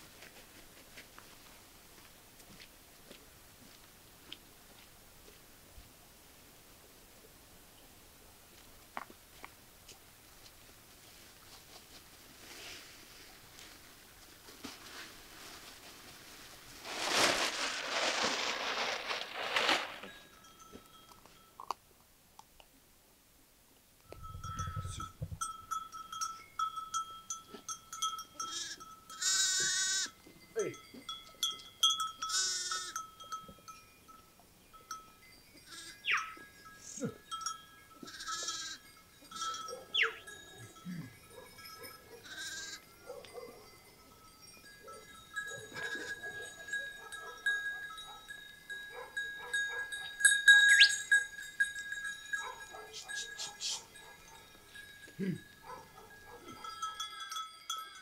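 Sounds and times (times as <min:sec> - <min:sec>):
neck bells clinking: 0:16.9 - 0:21.8, 0:24.1 - 0:29.3, 0:30.2 - 0:58.0
sheep and goats bleating: 0:28.4 - 0:30.2, 0:32.2 - 0:33.0, 0:35.7 - 0:36.1, 0:38.0 - 0:41.0, 0:42.2 - 0:42.9.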